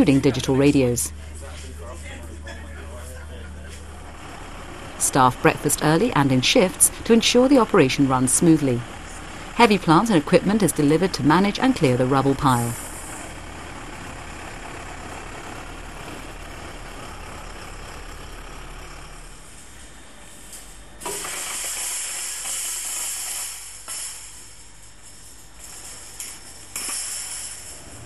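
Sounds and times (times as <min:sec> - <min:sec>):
diesel lorry engine idling: 0:00.0 - 0:20.0
air hissing: 0:21.0 - 0:28.0.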